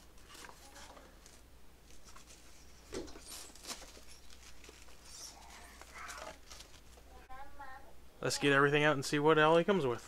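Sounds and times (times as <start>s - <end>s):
cardboard and paper rustling: 0.0s - 7.3s.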